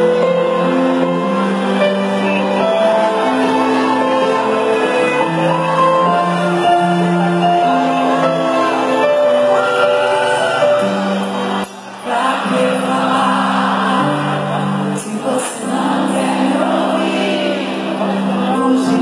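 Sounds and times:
crowd singing along: 0.0s - 19.0s
keyboard chords: 0.0s - 19.0s
woman singing: 12.0s - 19.0s.

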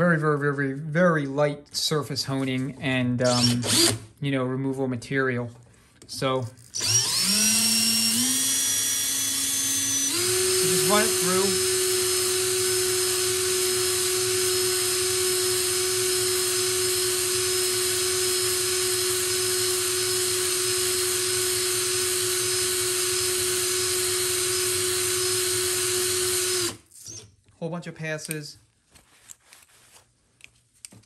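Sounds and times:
power drill whining: 3.2s - 4.0s, 6.6s - 27.3s.

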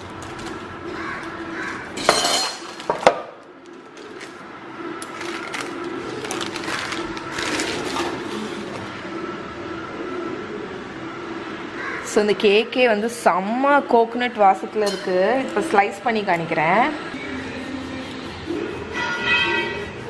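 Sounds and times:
paper rustling: 0.0s - 1.9s, 5.0s - 8.9s
parchment paper crinkling: 0.0s - 1.9s, 5.0s - 8.9s.

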